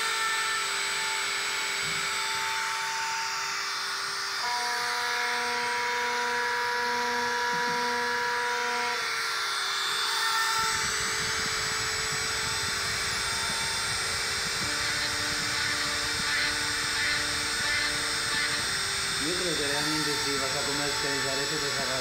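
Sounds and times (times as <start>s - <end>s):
drilling machine motors whining: 0.0s - 22.0s
low rattling noise: 10.6s - 22.0s.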